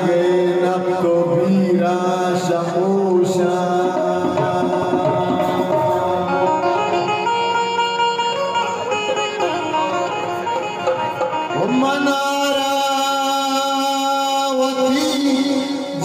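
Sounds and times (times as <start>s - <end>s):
man singing: 0.0s - 7.5s, 11.4s - 16.0s
plucked strings and percussion: 0.0s - 13.8s.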